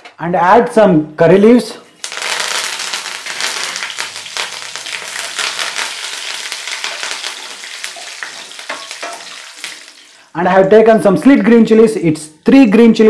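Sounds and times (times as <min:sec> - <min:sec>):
leaves sizzling in hot oil: 0:02.0 - 0:10.3.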